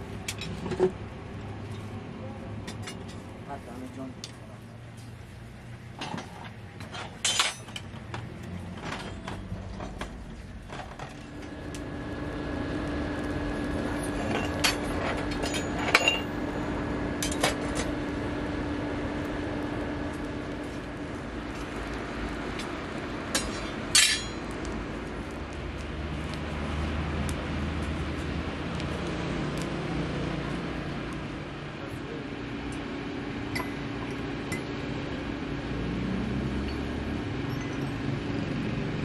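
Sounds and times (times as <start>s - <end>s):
forge fire roaring: 0.0s - 39.0s
metal tools clinking: 6.0s - 7.9s, 14.2s - 16.4s, 23.4s - 24.4s.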